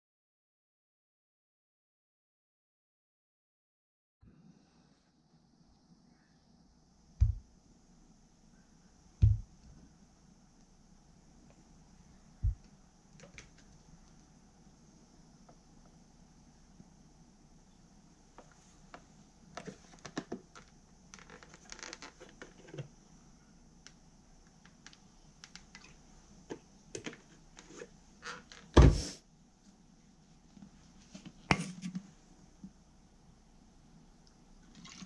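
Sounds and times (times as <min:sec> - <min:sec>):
heavy thump: 0:07.2 - 0:07.4, 0:09.2 - 0:09.5, 0:28.8 - 0:29.2.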